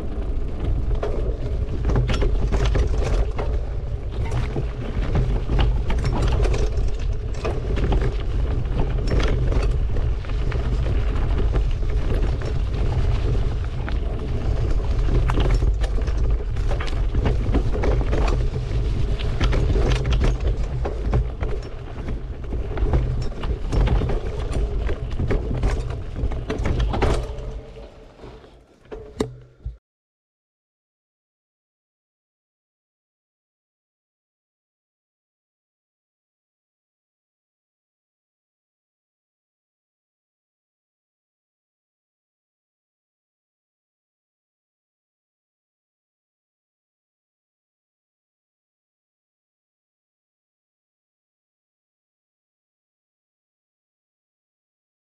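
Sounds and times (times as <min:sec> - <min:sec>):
bike rattling and knocking: 0:00.0 - 0:28.0
wind rumble on microphone: 0:00.0 - 0:28.4.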